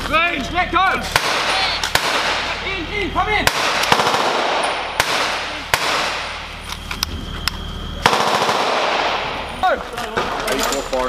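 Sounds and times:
automatic gunfire: 0:01.2 - 0:02.6, 0:03.4 - 0:06.4, 0:08.0 - 0:09.3.

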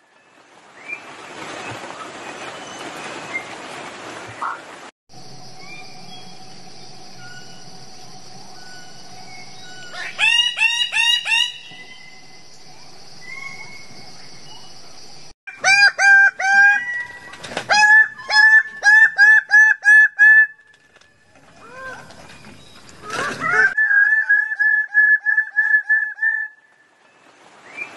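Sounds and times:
steady high buzz: 0:05.1 - 0:15.3.

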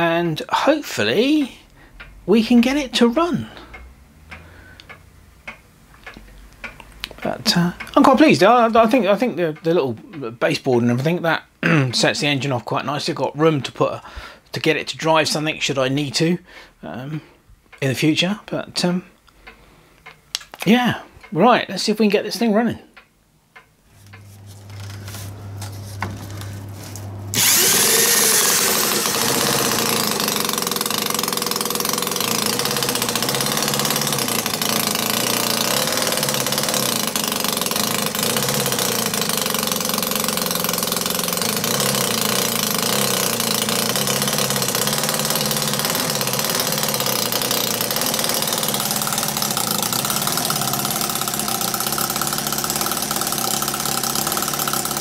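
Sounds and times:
electric drill spinning: 0:24.0 - 0:55.0
small engine running: 0:24.1 - 0:55.0.

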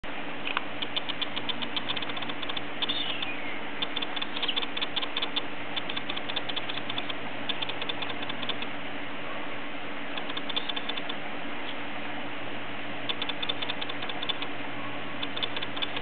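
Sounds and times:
steady low hum: 0:00.0 - 0:16.0
bird squeak: 0:00.8 - 0:08.6, 0:10.3 - 0:11.1.

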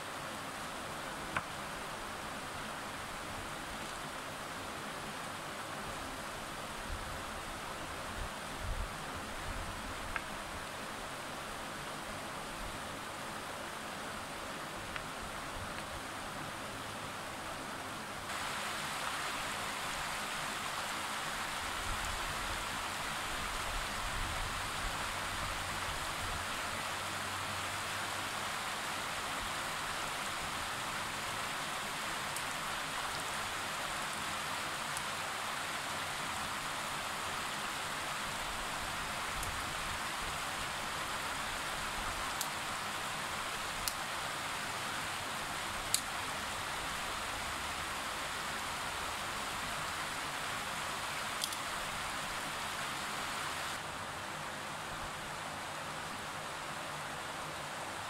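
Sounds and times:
river rushing over stones: 0:00.0 - 0:58.0
faint clicks: 0:42.3 - 0:42.6, 0:45.9 - 0:46.1, 0:51.4 - 0:51.7.

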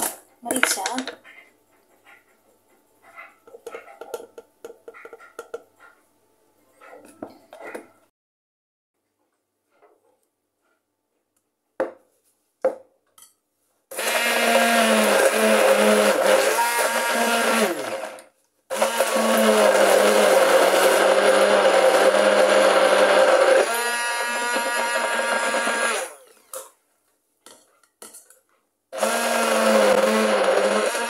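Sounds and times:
stick blender motor: 0:13.9 - 0:26.7, 0:29.0 - 0:31.0.

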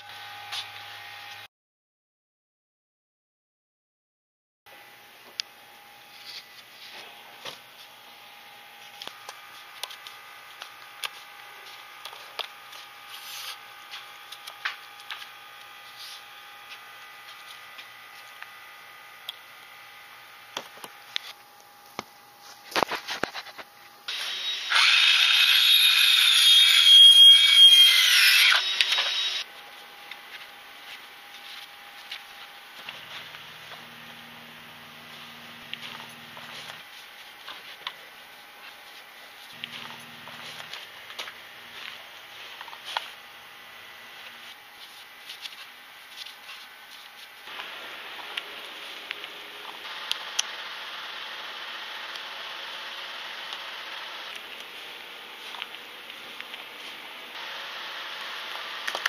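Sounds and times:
power tool running: 0:24.1 - 0:29.5.

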